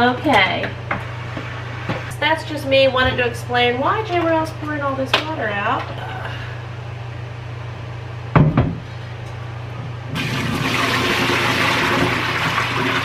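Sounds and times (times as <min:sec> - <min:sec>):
water pouring into a sink: 0:10.2 - 0:13.0.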